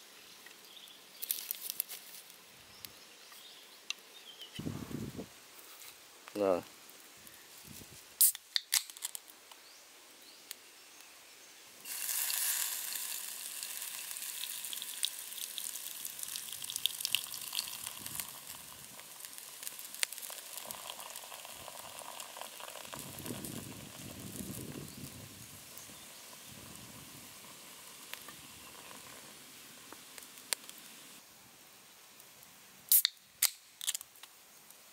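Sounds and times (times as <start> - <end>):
foam fizzing and crackling: 11.8 - 31.2
beer pouring into pot: 11.9 - 25.1
can pull tab snapping open: 32.9 - 34.0.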